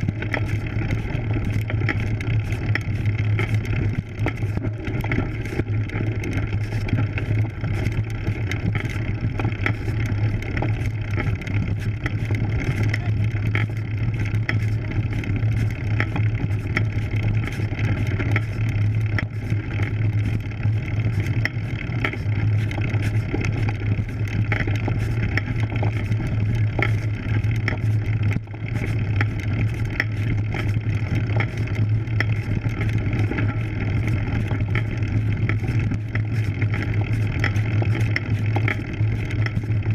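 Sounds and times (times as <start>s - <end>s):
bike tyres rolling on gravel: 0.0s - 39.9s
small clicks and rattles: 0.0s - 39.9s.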